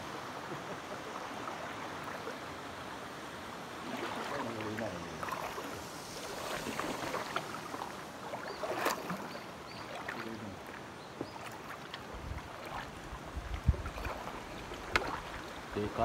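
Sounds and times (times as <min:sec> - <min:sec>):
paddle splashing and dripping: 0:03.7 - 0:16.0.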